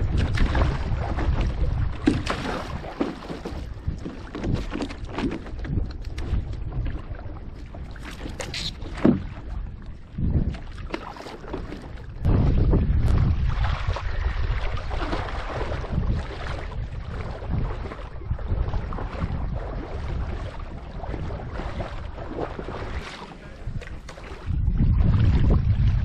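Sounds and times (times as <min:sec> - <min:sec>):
water splashing around a board: 0:00.0 - 0:26.0
wind buffeting microphone: 0:00.0 - 0:26.0.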